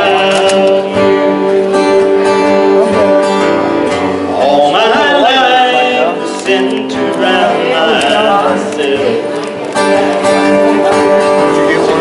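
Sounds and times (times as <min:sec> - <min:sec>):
person singing gospel song: 0:00.0 - 0:01.5, 0:04.3 - 0:09.5
acoustic guitar: 0:00.0 - 0:12.0.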